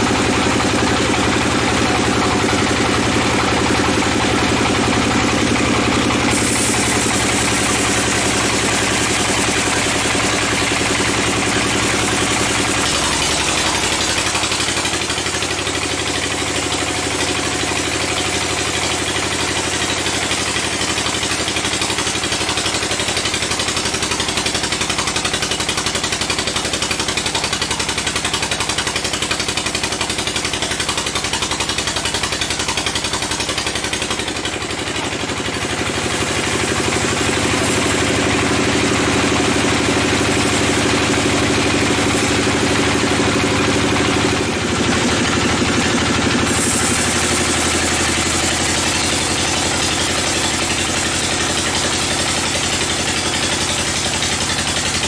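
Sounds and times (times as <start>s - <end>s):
band sawmill cutting log: 0.0s - 55.0s.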